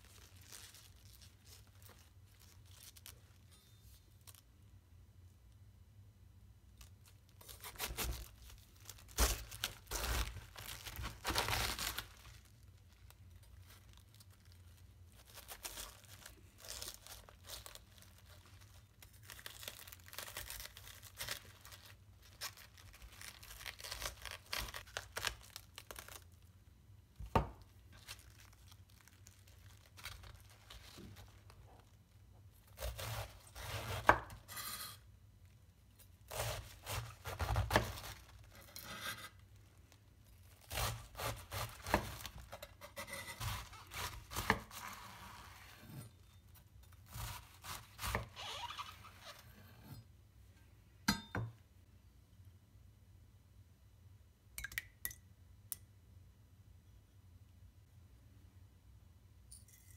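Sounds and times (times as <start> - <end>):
knife cutting cabbage: 7.4 - 12.0, 32.7 - 35.0, 36.2 - 39.4, 40.5 - 46.2, 46.8 - 49.9.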